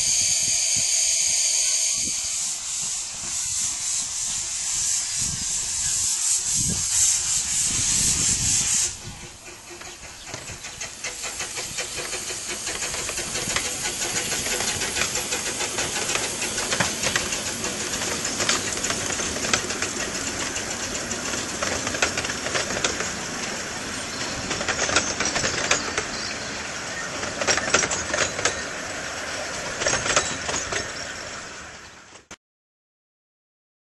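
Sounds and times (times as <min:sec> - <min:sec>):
steam locomotive hiss: 0:00.0 - 0:32.2
wheels clanking over rail joints: 0:09.0 - 0:32.3.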